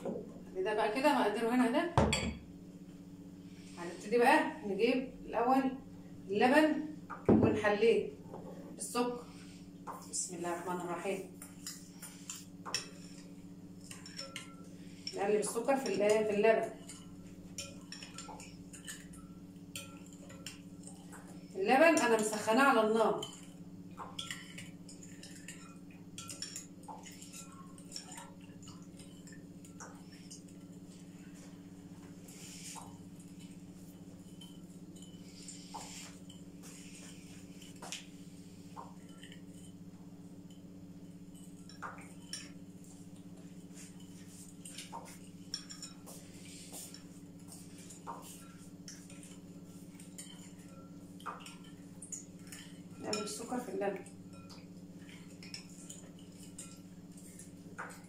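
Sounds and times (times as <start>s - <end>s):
steady low hum: 0.0s - 58.0s
spoon clinking against glass: 13.8s - 15.1s, 15.8s - 21.3s, 23.2s - 30.8s, 43.8s - 58.0s.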